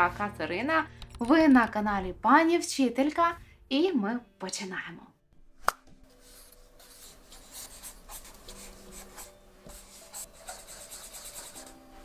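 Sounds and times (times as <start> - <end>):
marker writing on paper: 6.2 - 11.8.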